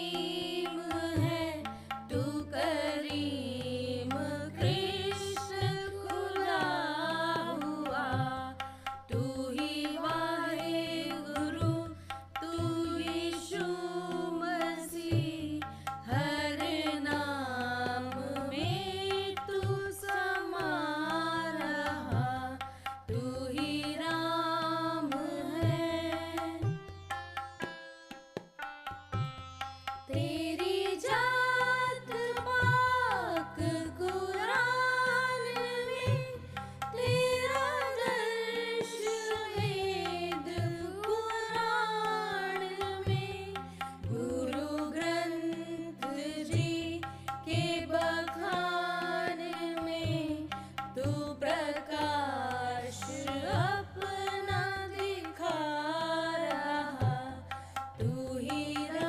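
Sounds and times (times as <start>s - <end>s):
steady drum beats: 0.2s - 2.6s, 4.5s - 6.8s, 35.9s - 45.2s, 46.4s - 48.6s.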